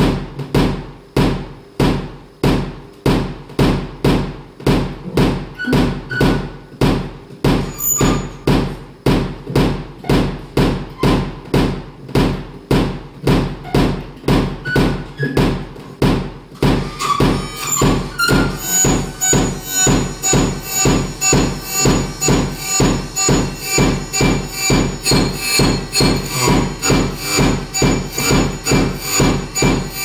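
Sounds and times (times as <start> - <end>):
electronic music beat: 17.8 - 29.8.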